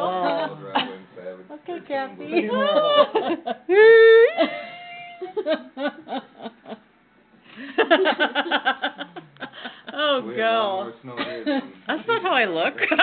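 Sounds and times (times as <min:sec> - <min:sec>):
woman laughing: 0:02.3 - 0:06.8.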